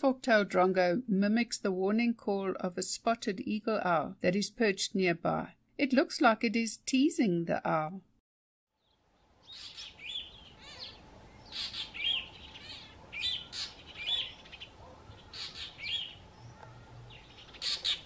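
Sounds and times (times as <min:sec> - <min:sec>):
bird harsh calls: 0:09.4 - 0:18.0.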